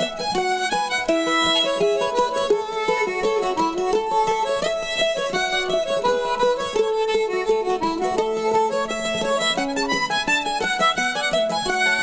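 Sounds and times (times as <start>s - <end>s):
instrumental music with plucked strings: 0.0s - 12.0s.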